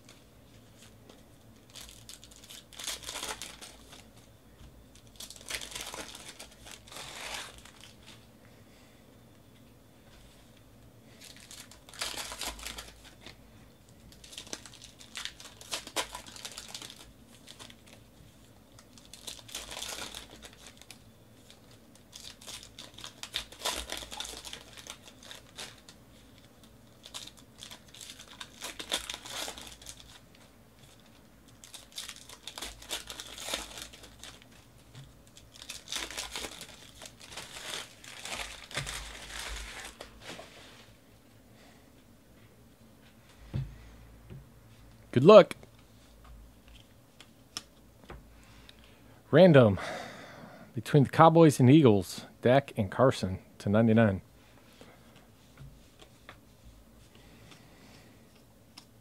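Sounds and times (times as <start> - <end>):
card pack wrappers tearing and crinkling: 1.6 - 4.3, 4.9 - 8.2, 11.2 - 13.4, 14.1 - 18.1, 18.7 - 40.4.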